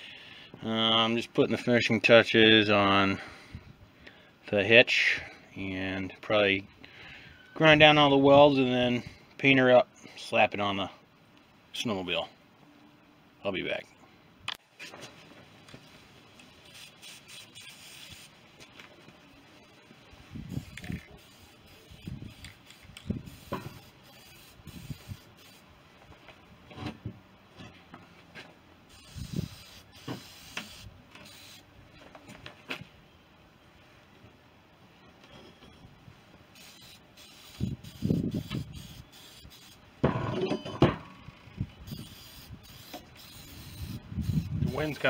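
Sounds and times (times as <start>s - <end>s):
spray paint can spraying: 16.4s - 18.4s, 20.5s - 25.6s, 28.9s - 31.7s, 36.5s - 39.8s, 41.9s - 45.0s
knocks and clunks of steel: 40.0s - 41.2s.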